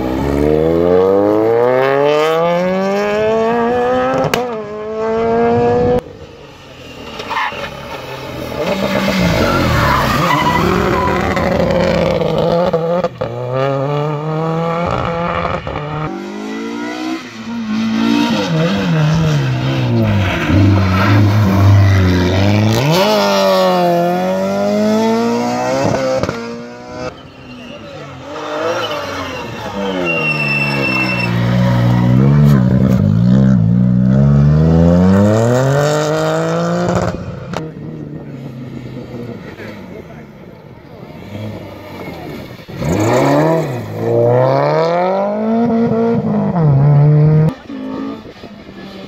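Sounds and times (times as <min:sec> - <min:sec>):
rally car engine revving: 0:00.0 - 0:06.1, 0:07.2 - 0:49.0
tyres skidding: 0:06.1 - 0:13.5, 0:14.2 - 0:49.0.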